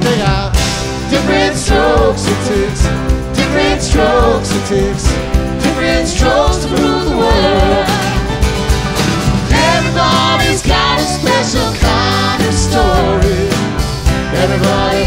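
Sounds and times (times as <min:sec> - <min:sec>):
lead vocal singing: 0:00.0 - 0:08.5, 0:09.5 - 0:15.0
live band playing: 0:00.0 - 0:15.0.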